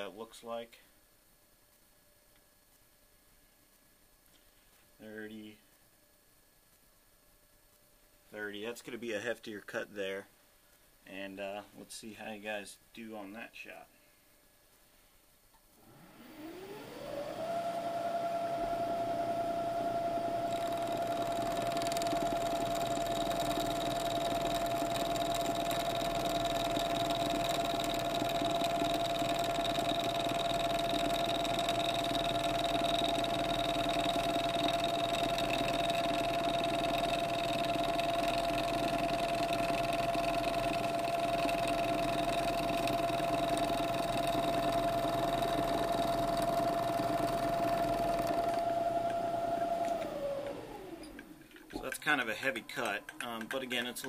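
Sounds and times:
milling machine spindle whine: 0:15.8 - 0:54.0
end mill cutting aluminum: 0:16.5 - 0:54.0.

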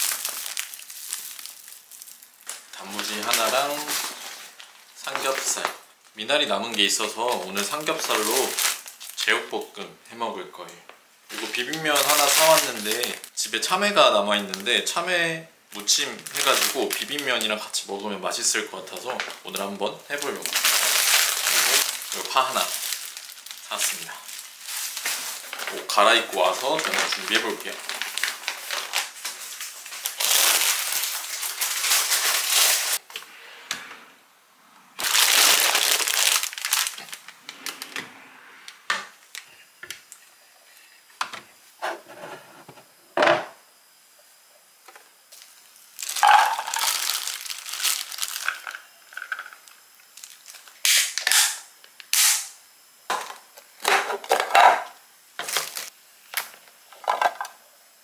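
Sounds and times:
plastic packaging rustling: 0:00.0 - 0:09.7, 0:11.3 - 0:15.0, 0:15.7 - 0:33.0, 0:35.0 - 0:38.0, 0:45.3 - 0:50.8, 0:53.1 - 0:57.6.

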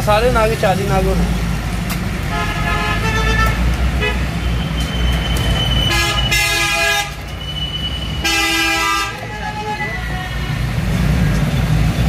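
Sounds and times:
low rumble of traffic: 0:00.0 - 0:12.0
vehicle horns honking: 0:02.3 - 0:10.6.

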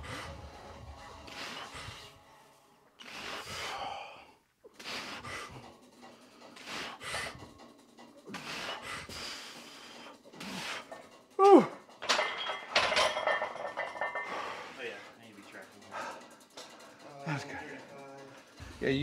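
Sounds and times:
person breathing hard: 0:00.0 - 0:02.3, 0:03.0 - 0:07.5, 0:08.3 - 0:11.0, 0:15.9 - 0:17.0.

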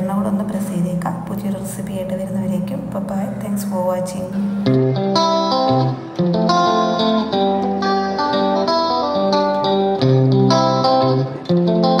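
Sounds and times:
plucked guitar melody: 0:00.0 - 0:12.0
sustained bass notes: 0:00.0 - 0:12.0.

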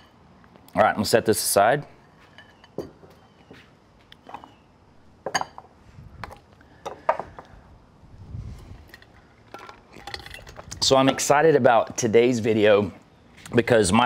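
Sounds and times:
wooden bowls knocking and clinking: 0:05.2 - 0:07.5, 0:08.9 - 0:12.0.

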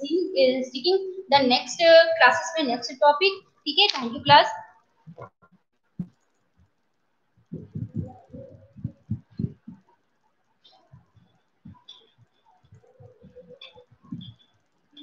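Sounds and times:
scattered knocks and clicks: 0:03.8 - 0:15.0
footsteps with dull thumps: 0:03.9 - 0:06.7, 0:07.4 - 0:10.0, 0:10.6 - 0:15.0.

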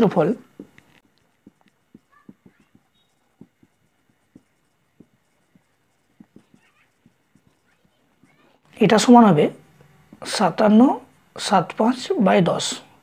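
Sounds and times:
marker tapping on whiteboard: 0:00.0 - 0:08.5, 0:10.0 - 0:11.6
marker squeaks: 0:00.4 - 0:08.6.

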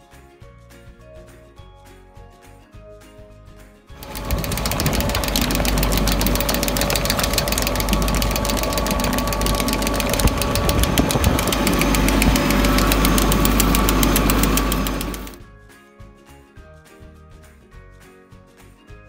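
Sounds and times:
tractor engine running: 0:04.0 - 0:15.4.

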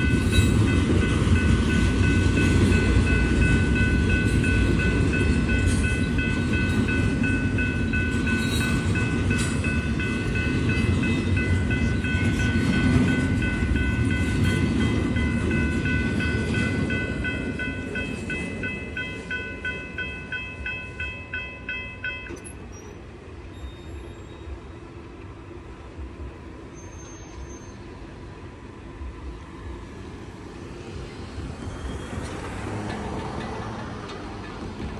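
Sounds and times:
high ringing pulsing bell: 0:00.0 - 0:22.9
train rumbling past: 0:00.0 - 0:34.9.

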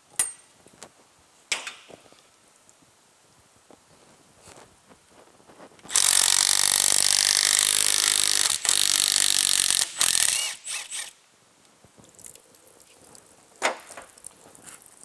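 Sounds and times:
cordless power tool spinning bolts: 0:05.9 - 0:11.2.

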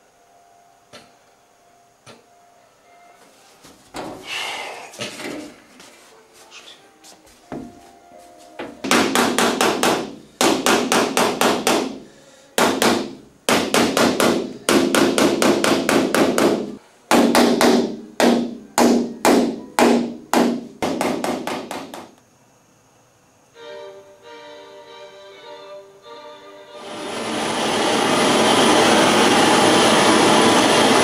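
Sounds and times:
hammer striking metal punch: 0:08.8 - 0:12.0, 0:12.6 - 0:22.1.

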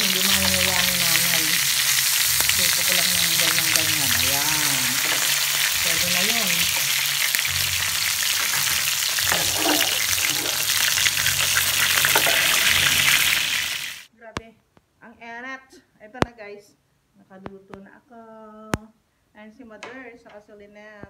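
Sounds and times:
chicken sizzling in hot oil: 0:00.0 - 0:14.1.

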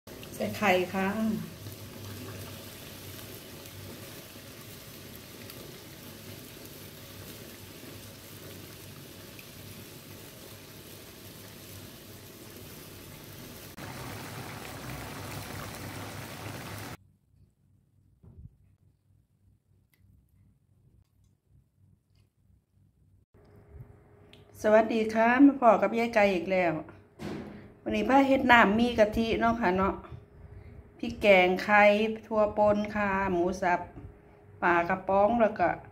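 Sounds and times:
liquid bubbling in frying pan: 0:00.1 - 0:17.0.

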